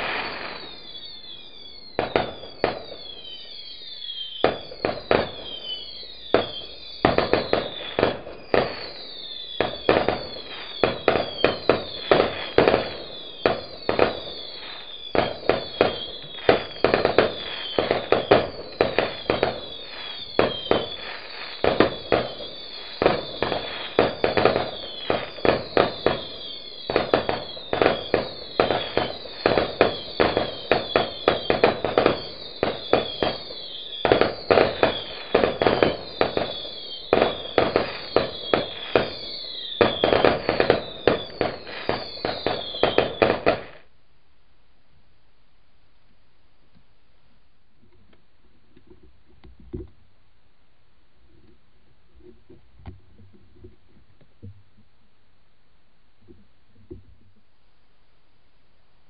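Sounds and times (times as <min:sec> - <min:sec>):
high falling whistles: 0:00.0 - 0:43.8
fireworks bangs: 0:00.0 - 0:43.9.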